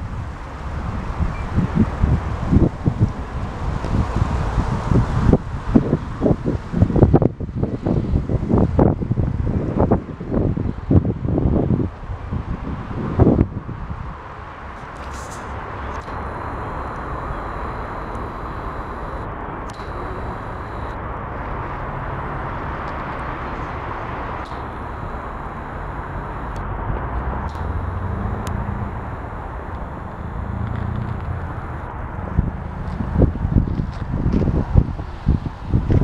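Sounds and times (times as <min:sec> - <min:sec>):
wind buffeting microphone: 0:00.0 - 0:14.8, 0:24.5 - 0:36.0.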